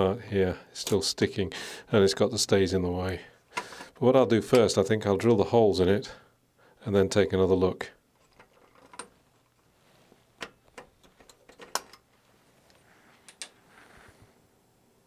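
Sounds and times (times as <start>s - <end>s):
soft scrape: 12.2s - 14.4s.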